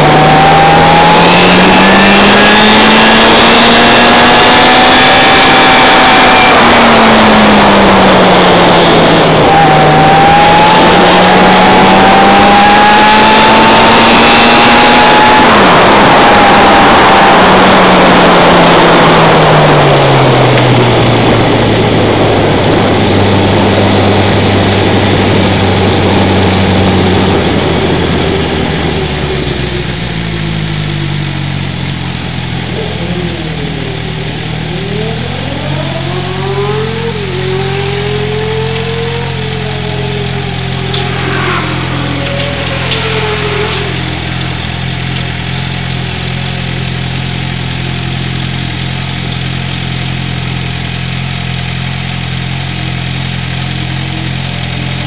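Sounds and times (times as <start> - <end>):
car engine: 0.0 - 55.0
high whine: 0.0 - 55.0
wind noise: 1.3 - 29.8.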